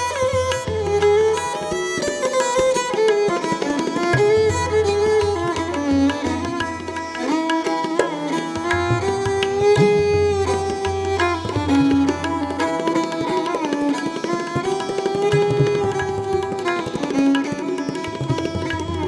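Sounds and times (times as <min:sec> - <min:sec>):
tabla drumming: 0:00.0 - 0:19.0
violin melody: 0:00.0 - 0:19.0.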